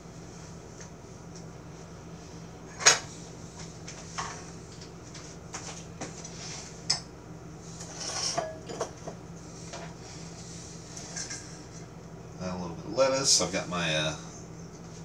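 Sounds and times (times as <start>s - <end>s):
kitchenware scraping: 7.8s - 9.1s, 11.0s - 11.7s.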